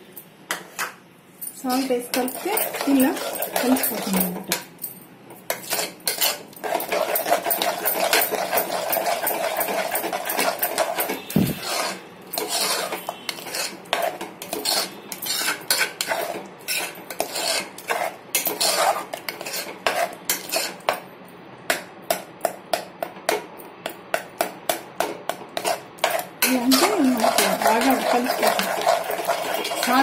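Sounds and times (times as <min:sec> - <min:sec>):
ladle scraping metal pot: 0:01.7 - 0:04.6, 0:05.5 - 0:20.9, 0:25.6 - 0:30.0.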